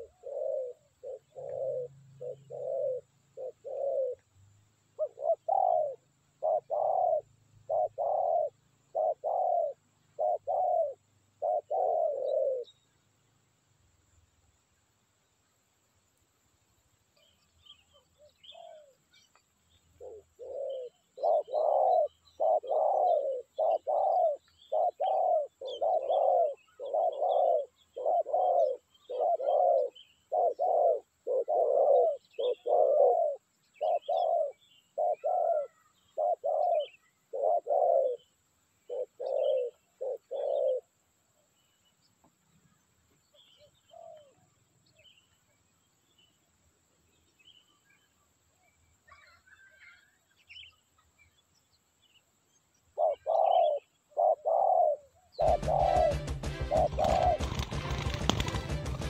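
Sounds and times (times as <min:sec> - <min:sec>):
dove cooing: 0:00.0 - 0:12.7, 0:18.4 - 0:19.0, 0:20.0 - 0:40.9, 0:43.6 - 0:44.4, 0:53.0 - 0:59.0
faint small birds chirping: 0:00.0 - 0:59.0.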